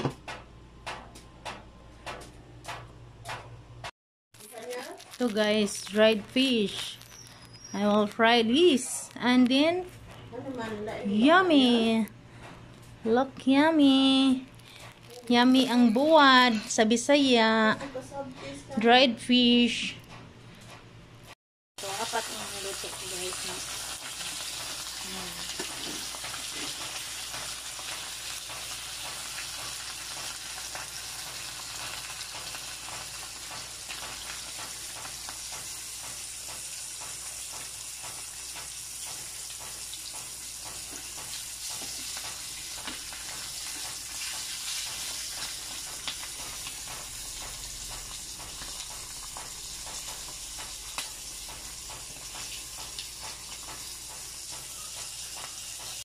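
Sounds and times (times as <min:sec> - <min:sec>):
fish frying in hot oil: 0:21.8 - 0:56.0.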